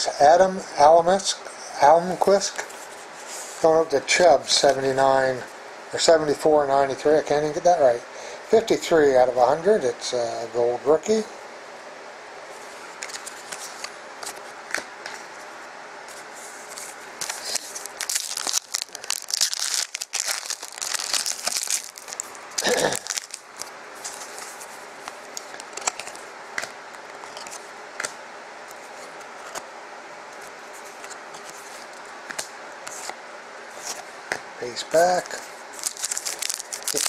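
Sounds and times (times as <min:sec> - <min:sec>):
cards clicking and rustling: 0:16.7 - 0:28.1, 0:35.2 - 0:37.0
foil wrapper crinkling and tearing: 0:17.2 - 0:24.6, 0:35.2 - 0:37.0.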